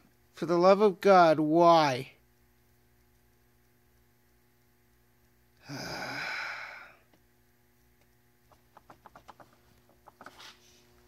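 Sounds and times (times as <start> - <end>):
man sighing heavily: 5.6 - 7.1.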